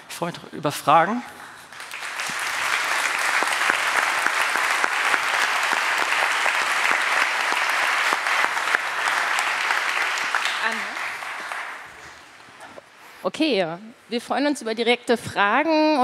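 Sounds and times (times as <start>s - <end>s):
audience applauding: 1.6s - 12.7s.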